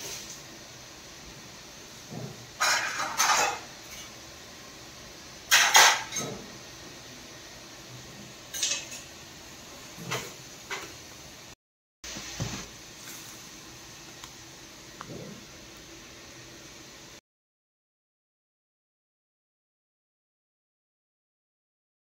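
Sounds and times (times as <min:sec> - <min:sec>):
pot and lid clattering: 0:02.1 - 0:04.1, 0:05.5 - 0:06.5, 0:08.5 - 0:09.1.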